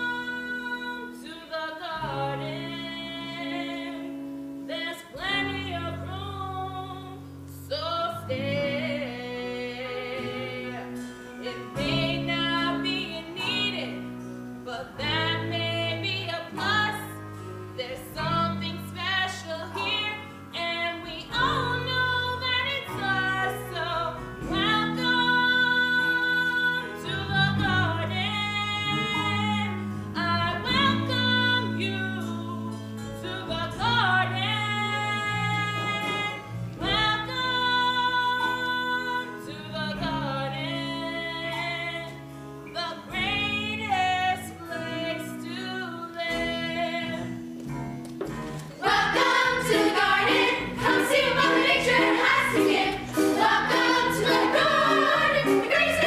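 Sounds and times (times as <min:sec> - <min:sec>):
girl singing soulful song: 0:00.0 - 0:47.6, 0:48.7 - 0:56.0
instrumental accompaniment: 0:08.4 - 0:56.0
steady bass line: 0:48.8 - 0:56.0.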